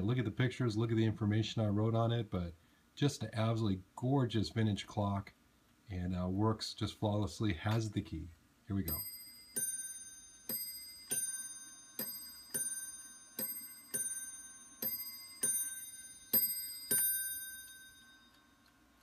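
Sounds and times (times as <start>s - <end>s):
mantel clock chiming ding-dong: 8.9s - 18.6s.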